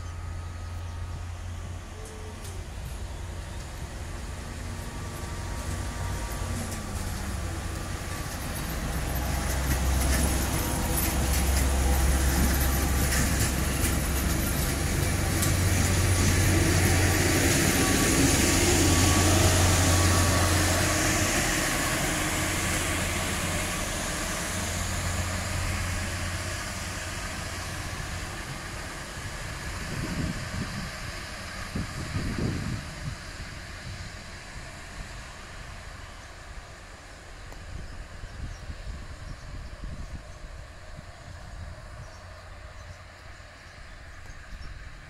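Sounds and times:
diesel engine drone: 0:00.0 - 0:45.0
wheels rolling on rails: 0:04.8 - 0:20.7.

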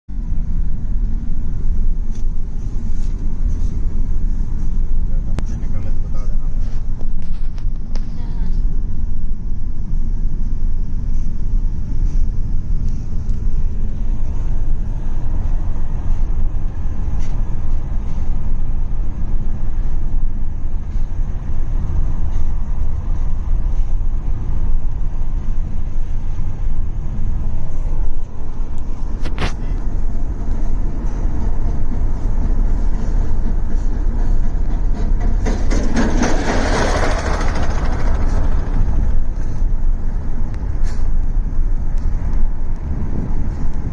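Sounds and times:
road and wind noise in car: 0:00.1 - 0:43.9
rushing wind noise: 0:00.2 - 0:43.9.

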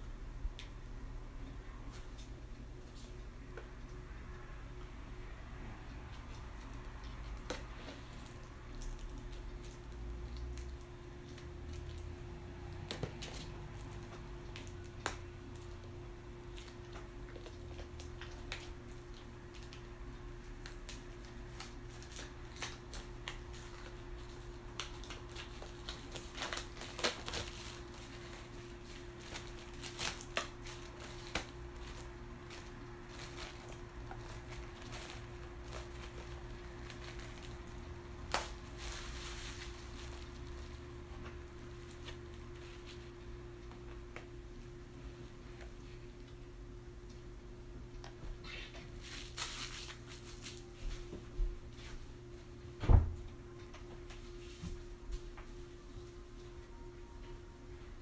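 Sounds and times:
steady low hum: 0:00.0 - 0:58.0
crinkling rustles: 0:06.2 - 0:44.7, 0:48.0 - 0:52.0.

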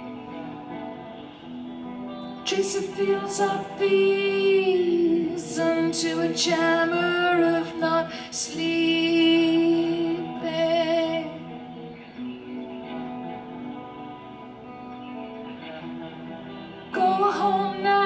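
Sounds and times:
woman singing with vibrato: 0:02.4 - 0:11.6, 0:16.9 - 0:18.0.

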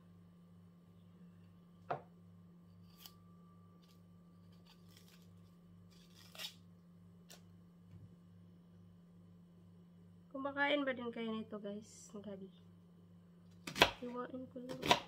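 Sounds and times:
steady low hum: 0:00.0 - 0:14.8
onion skin peeling scratches: 0:03.8 - 0:06.6.

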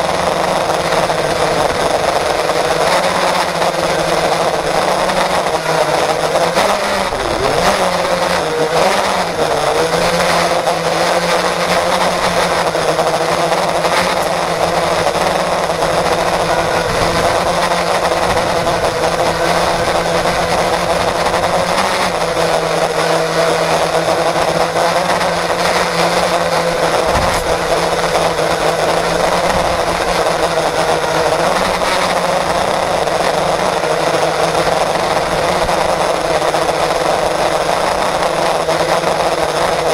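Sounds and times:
quadcopter motors whining: 0:00.0 - 0:39.9.

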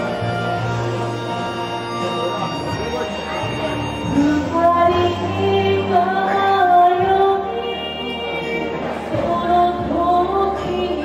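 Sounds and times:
backing music: 0:00.0 - 0:11.0
woman singing into a microphone: 0:04.1 - 0:11.0.

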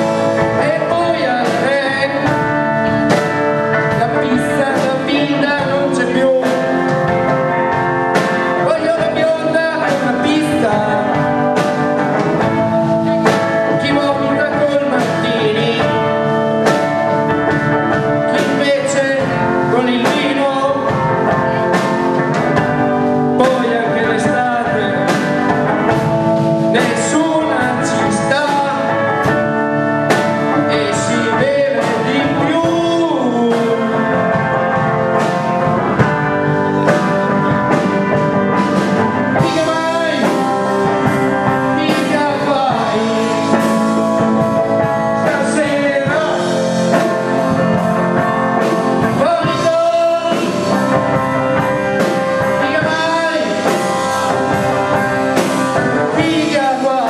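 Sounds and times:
man singing into a microphone: 0:00.0 - 0:35.7, 0:38.5 - 0:57.0
drum kit: 0:00.0 - 0:57.0
electric guitar: 0:00.0 - 0:57.0.

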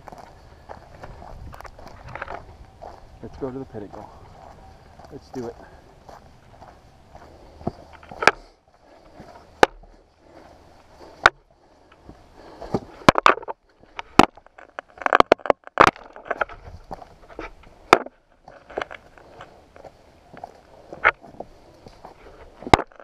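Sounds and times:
footsteps on rocky trail: 0:00.0 - 0:23.0
walking stick striking rock: 0:03.8 - 0:10.0, 0:10.9 - 0:23.0.

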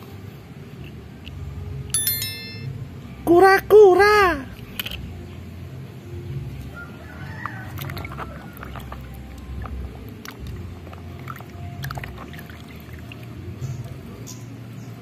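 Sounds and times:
small water splashes: 0:07.4 - 0:13.5
hand scrubbing toy in water: 0:07.6 - 0:13.4.

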